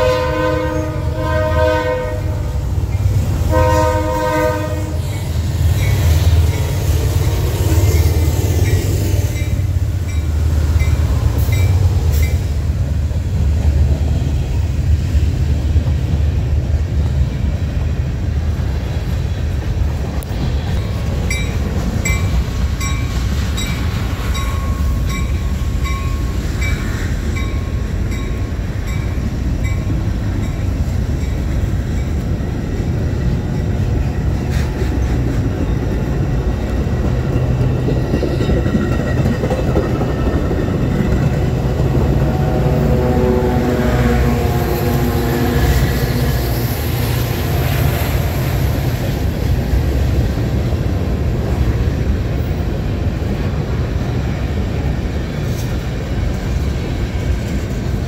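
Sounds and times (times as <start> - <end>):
locomotive chime horn: 0.0 - 2.6, 3.5 - 5.1, 42.0 - 46.0
train rumbling past: 0.0 - 58.0.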